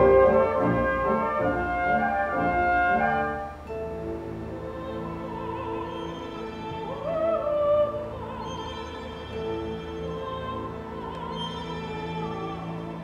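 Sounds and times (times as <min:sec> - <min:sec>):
symphony orchestra playing: 0:00.0 - 0:13.0
soprano singing with vibrato: 0:04.2 - 0:13.0.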